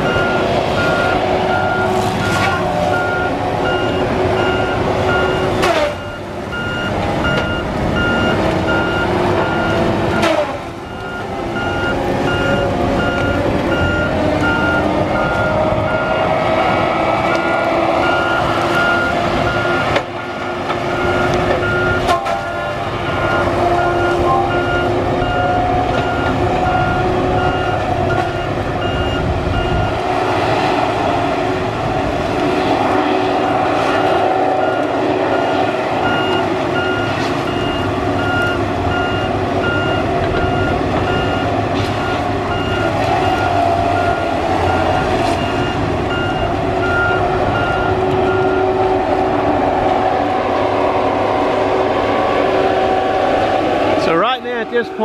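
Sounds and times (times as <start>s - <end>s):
travel alarm beeping: 0.0s - 16.4s, 17.4s - 19.9s, 20.8s - 30.0s, 34.6s - 48.8s
diesel engine and hydraulics: 0.0s - 55.0s.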